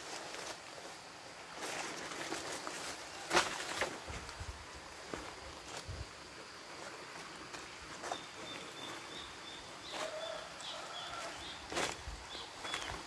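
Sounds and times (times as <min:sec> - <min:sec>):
footsteps crunching on dry leaves: 0:00.0 - 0:13.0
steady background hiss: 0:00.0 - 0:13.0
bird chirping: 0:08.0 - 0:13.0.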